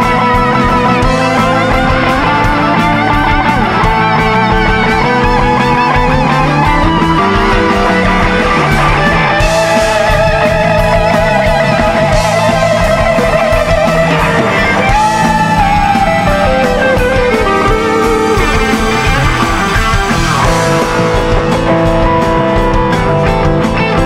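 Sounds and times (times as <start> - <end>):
bass: 0.0 - 24.0
electric guitar lead: 0.0 - 24.0
steady drums: 0.0 - 24.0.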